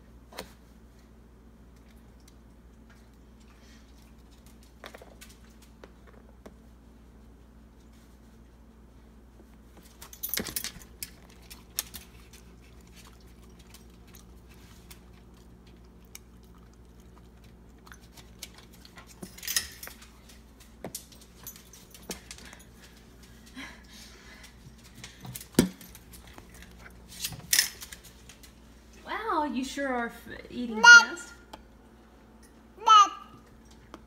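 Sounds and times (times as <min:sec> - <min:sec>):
dog eating with clicks: 0:09.9 - 0:23.0
dog collar tags jingling: 0:19.2 - 0:20.1.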